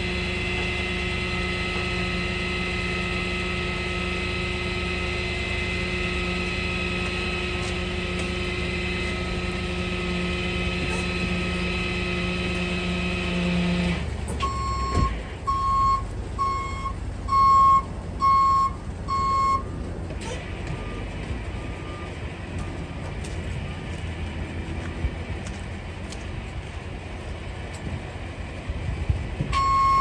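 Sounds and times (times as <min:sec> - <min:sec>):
truck reverse alarm beeping: 0:00.0 - 0:23.1, 0:29.5 - 0:30.0
truck engine rumble: 0:00.0 - 0:30.0.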